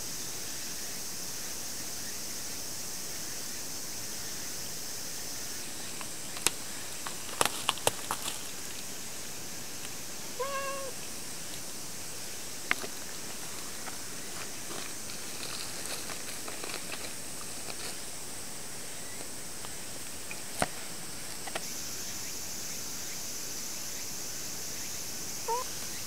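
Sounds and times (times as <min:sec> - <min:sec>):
cat meowing: 0:10.4 - 0:11.0, 0:25.5 - 0:25.7.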